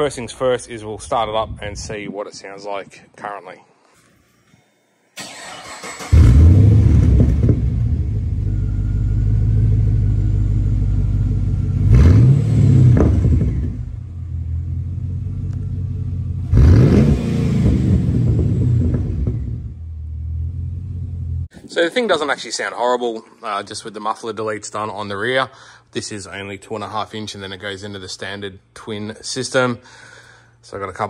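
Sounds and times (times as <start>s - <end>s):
engine revving: 5.2s - 14.0s, 16.3s - 21.2s
car engine starting and idling: 5.2s - 21.5s.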